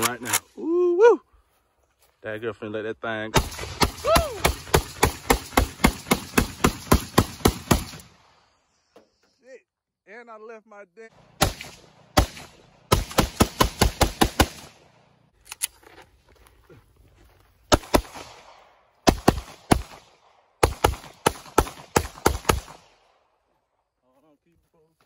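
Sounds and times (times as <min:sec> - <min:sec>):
rifle firing rapid shots: 0:03.4 - 0:08.3, 0:11.2 - 0:15.0, 0:17.7 - 0:23.0.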